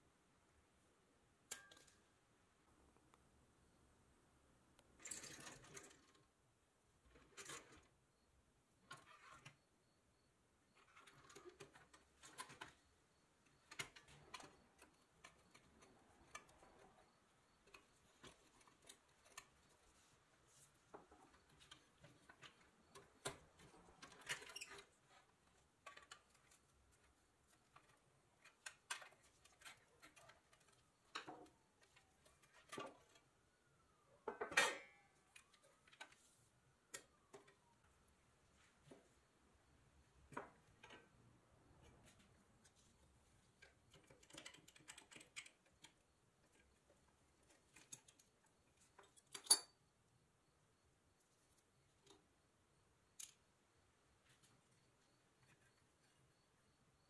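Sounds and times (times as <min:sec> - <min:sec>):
metal clicks taps and scrapes: 0:01.5 - 0:02.1, 0:13.4 - 0:20.1, 0:40.3 - 0:49.8, 0:53.2 - 0:53.5.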